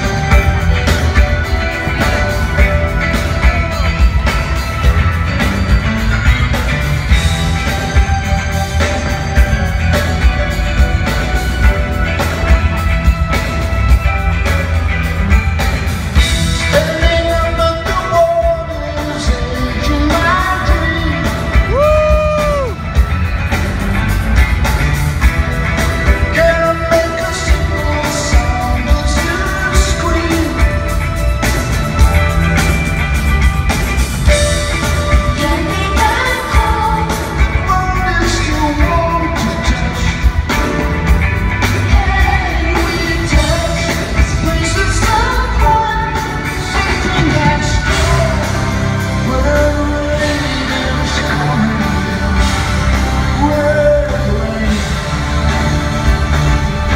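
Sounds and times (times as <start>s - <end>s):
live rock band playing: 0.0s - 56.9s
man singing: 16.6s - 23.0s, 26.1s - 31.5s, 34.8s - 41.0s, 41.6s - 55.8s.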